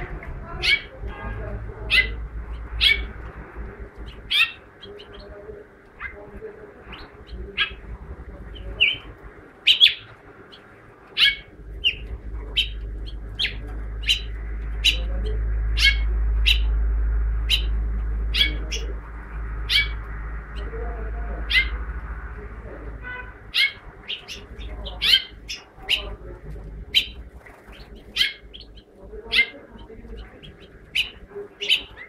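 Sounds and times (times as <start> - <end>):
finch chirping: 0.0 - 32.0
low rumble: 0.0 - 32.0.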